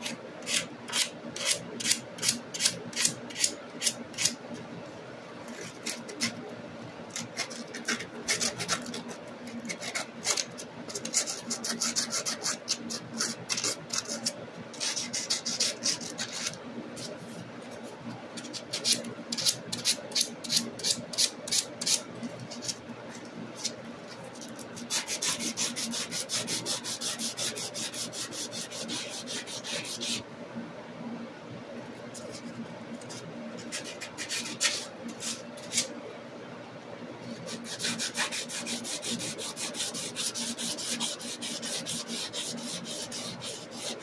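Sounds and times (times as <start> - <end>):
sandpaper scratching metal: 7.2 - 17.2, 24.5 - 30.2, 33.1 - 35.9, 37.4 - 44.0.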